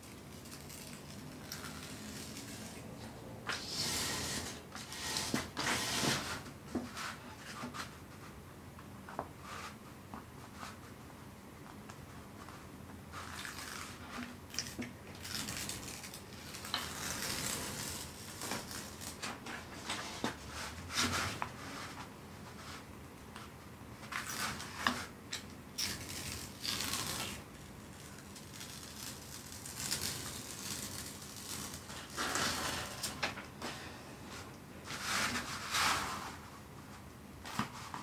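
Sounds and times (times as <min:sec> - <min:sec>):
plastic film rustling and crackling: 0:00.0 - 0:03.0, 0:13.2 - 0:21.1, 0:25.8 - 0:33.6.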